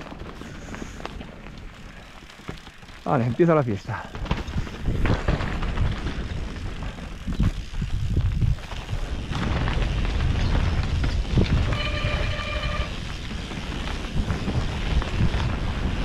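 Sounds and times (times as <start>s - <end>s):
bike tyres and frame rattling: 0.0s - 16.0s
wind buffeting microphone: 4.1s - 16.0s.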